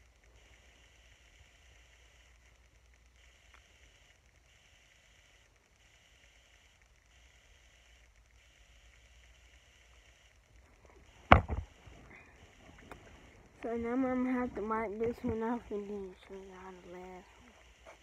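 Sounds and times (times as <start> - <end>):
phone bumped and handled: 11.2 - 12.0.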